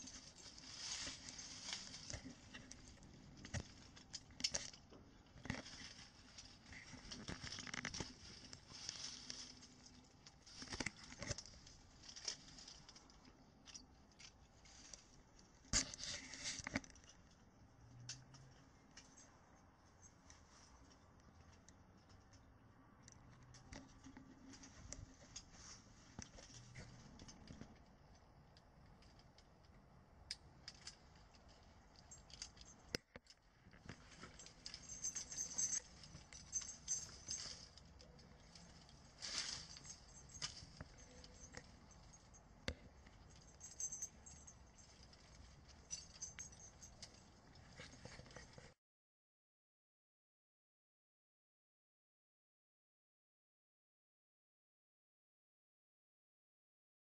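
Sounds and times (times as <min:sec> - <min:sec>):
twigs and brush crackling: 0:00.0 - 0:17.1, 0:33.4 - 0:42.1.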